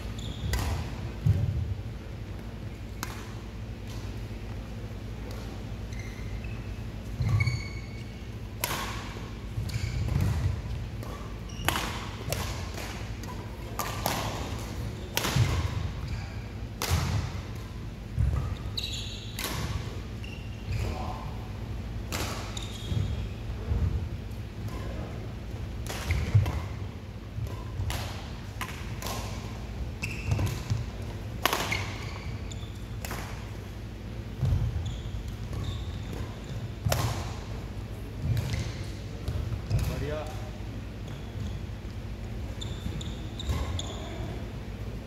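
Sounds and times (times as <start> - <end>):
shoe squeaks: 0.0 - 0.6, 5.8 - 8.4, 9.6 - 10.2, 11.1 - 12.1, 15.0 - 16.5, 18.4 - 19.4, 20.1 - 21.2, 22.4 - 23.5, 30.0 - 30.8, 31.7 - 33.0, 34.4 - 36.7, 41.0 - 41.8, 42.5 - 44.5
rackets striking shuttlecock: 0.4 - 1.6, 2.4 - 4.6, 8.6 - 16.1, 16.7 - 20.0, 22.1 - 22.6, 25.8 - 26.8, 27.4 - 32.1, 33.0 - 33.7, 35.2 - 37.5.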